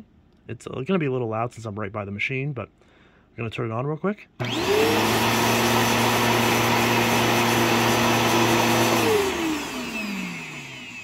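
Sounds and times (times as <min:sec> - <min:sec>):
upright vacuum running: 0:04.4 - 0:11.0
vacuum motor winding down: 0:04.4 - 0:11.0.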